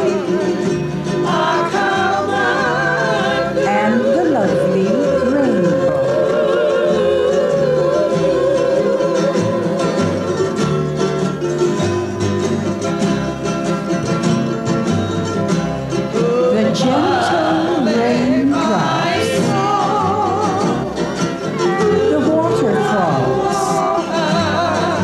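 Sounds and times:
person singing with vibrato: 0.0 - 10.4, 16.2 - 25.0
plucked strings: 0.0 - 25.0.

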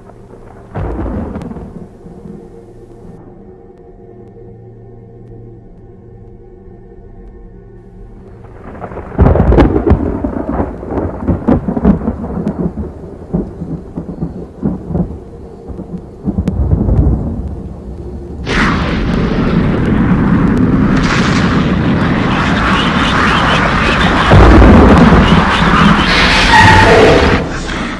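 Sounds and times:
thunder cracking and rumbling: 0.0 - 3.2, 8.4 - 27.9
heavy rain hiss: 8.4 - 27.9.

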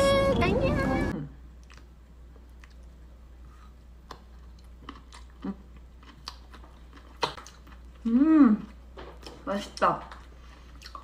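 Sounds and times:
low steady hum: 0.0 - 11.0
person chewing noodles: 1.6 - 8.8, 10.1 - 11.0.

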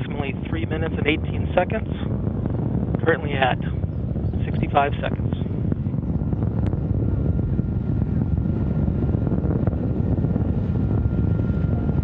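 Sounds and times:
rocket engines rumbling: 0.0 - 12.0.

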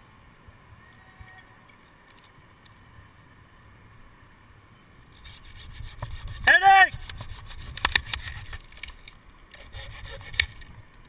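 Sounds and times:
faint wind rumble: 0.0 - 11.0
hand saw cutting wood: 5.2 - 8.6, 9.6 - 10.6.

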